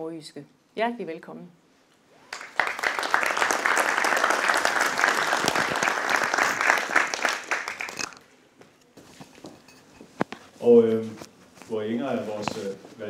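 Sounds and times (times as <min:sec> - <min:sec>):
audience applauding: 0:02.3 - 0:08.2.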